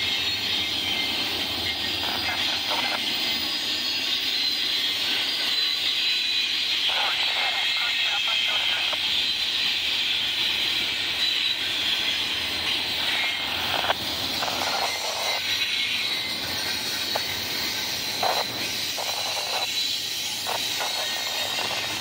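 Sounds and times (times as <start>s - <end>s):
steel wheels on rail: 0.0s - 22.0s
train cars clanking: 0.0s - 22.0s.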